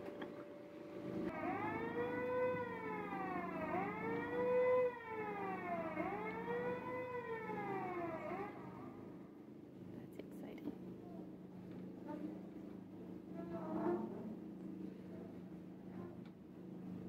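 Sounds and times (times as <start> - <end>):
siren wailing: 1.2 - 9.2.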